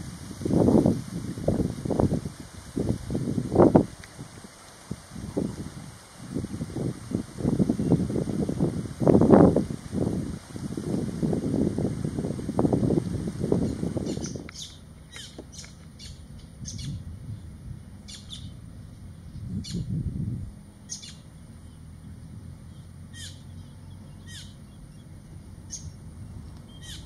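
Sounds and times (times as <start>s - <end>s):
high bird chirps: 14.0s - 17.0s, 18.1s - 18.6s, 19.6s - 19.9s, 20.8s - 21.8s, 22.7s - 25.1s, 25.7s - 26.0s, 26.6s - 27.0s
low rumble: 16.1s - 27.0s.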